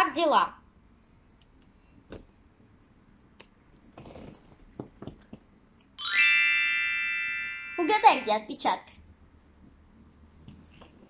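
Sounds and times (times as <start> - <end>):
soft rustle: 3.8 - 5.3
bright ringing chime: 6.0 - 8.4.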